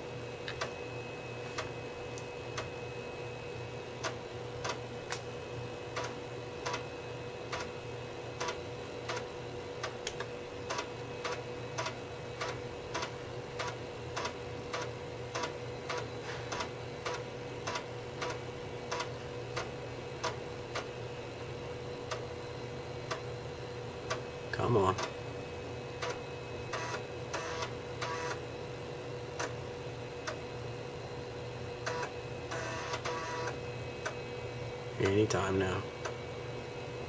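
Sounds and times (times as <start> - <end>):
computer hum: 0.0 - 37.0
floppy disk drive clicking: 31.8 - 34.2.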